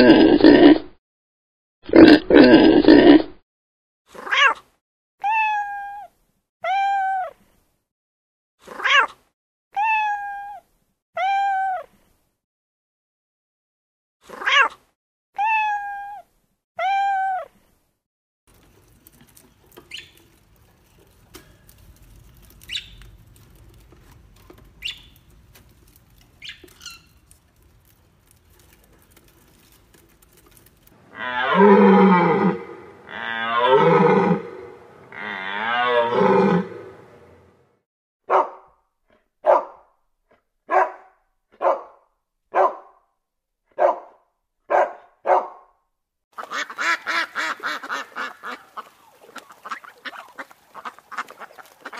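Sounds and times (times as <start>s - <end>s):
cat meowing: 5.2s - 7.3s, 9.8s - 10.6s, 15.4s - 16.2s
drawn-out animal calls: 18.5s - 34.4s, 46.4s - 51.9s
bird chirping: 19.8s - 20.2s, 22.6s - 23.2s, 24.8s - 25.3s, 26.4s - 27.2s
dog barking: 38.3s - 38.7s, 39.4s - 39.9s, 40.7s - 43.0s, 43.7s - 45.7s.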